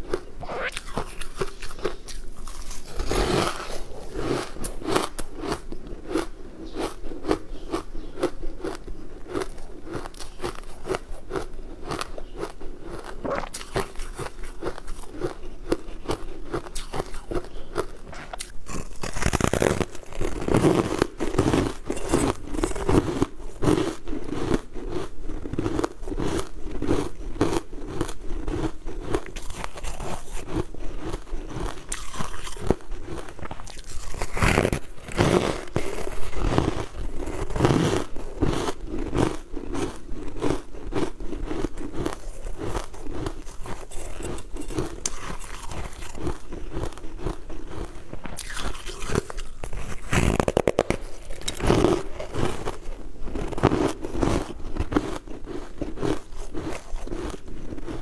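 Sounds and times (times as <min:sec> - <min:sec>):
ice being chewed: 0:00.0 - 0:58.0.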